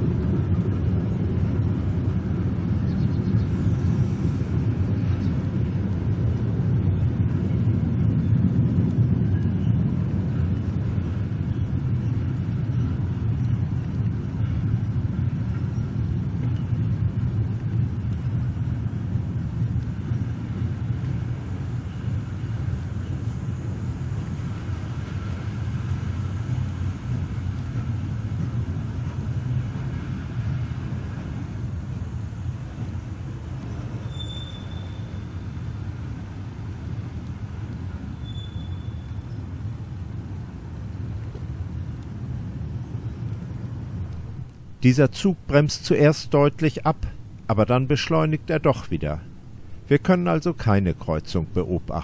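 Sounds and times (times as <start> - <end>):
train wheels rumbling on rail: 0.0 - 52.0
brake squeal: 33.6 - 35.8, 37.9 - 39.4.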